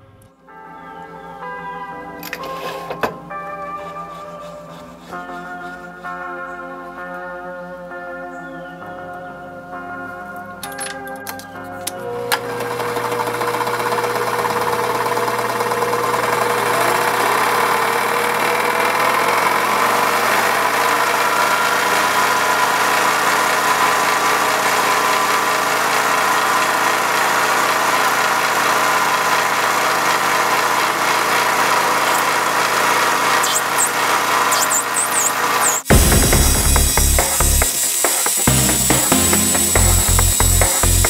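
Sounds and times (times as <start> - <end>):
metal lathe running: 12.1 - 41.0
gear train knocking: 25.8 - 41.0.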